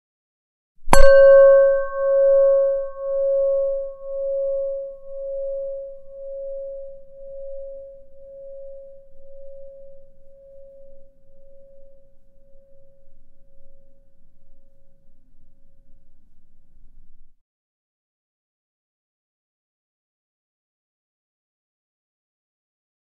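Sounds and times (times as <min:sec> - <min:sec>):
singing bowl ringing: 0:00.9 - 0:16.5.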